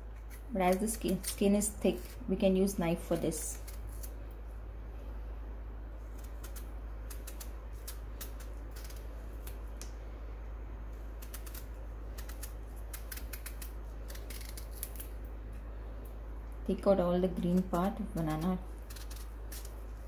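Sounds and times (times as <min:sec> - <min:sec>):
steady low hum: 0:00.0 - 0:20.0
knife scraping banana peel: 0:06.1 - 0:09.6, 0:11.2 - 0:15.1, 0:17.4 - 0:20.0.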